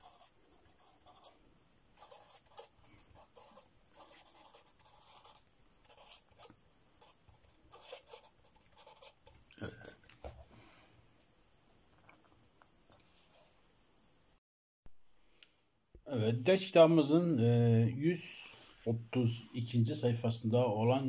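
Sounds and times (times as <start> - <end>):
marker scratching on paper: 0.0 - 1.4, 2.0 - 9.4.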